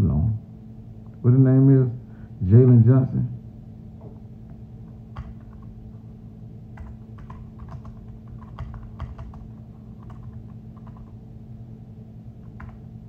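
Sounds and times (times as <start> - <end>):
steady low hum: 0.0 - 13.0
keyboard typing: 5.1 - 5.8, 6.8 - 11.2, 12.4 - 12.9.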